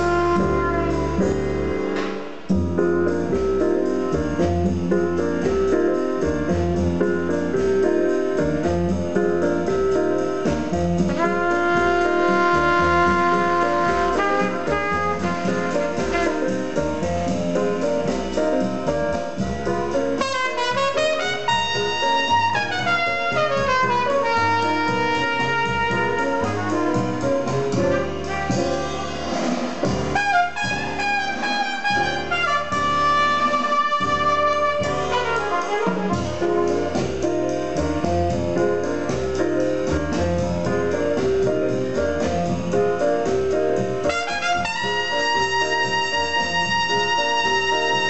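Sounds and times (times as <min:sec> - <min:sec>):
jazz with brass and piano: 0:00.0 - 0:48.0.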